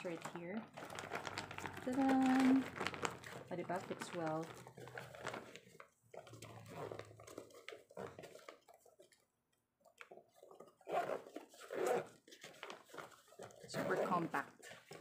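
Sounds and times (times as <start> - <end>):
fabric cooler bag rustling and knocking: 0.0 - 8.5.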